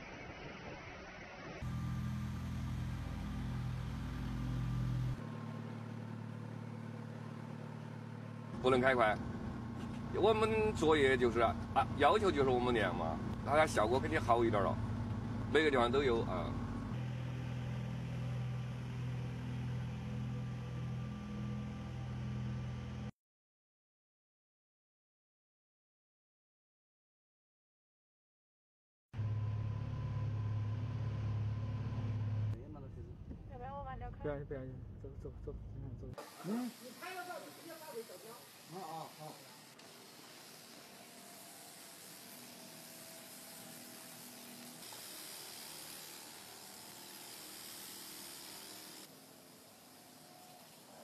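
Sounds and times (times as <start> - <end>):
truck engine hum: 1.5 - 23.1, 29.2 - 44.8
light hiss: 36.2 - 51.0.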